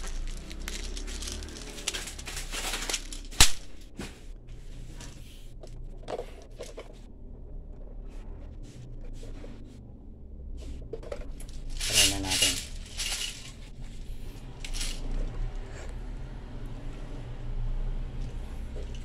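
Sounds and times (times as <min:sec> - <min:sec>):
metal pellets rattling: 0:00.0 - 0:03.9, 0:11.5 - 0:13.8, 0:14.6 - 0:15.3.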